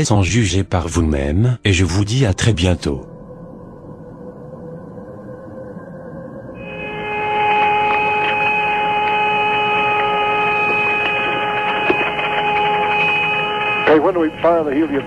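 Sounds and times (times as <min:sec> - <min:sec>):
steady whistling tones: 0:02.6 - 0:15.0
faint radio hiss: 0:13.8 - 0:15.0.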